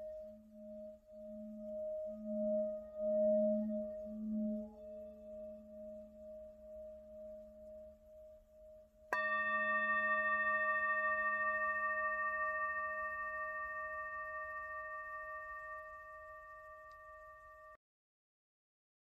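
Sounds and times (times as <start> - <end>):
singing bowl humming: 0.0 - 17.8
singing bowl struck with mallet: 9.1 - 17.8.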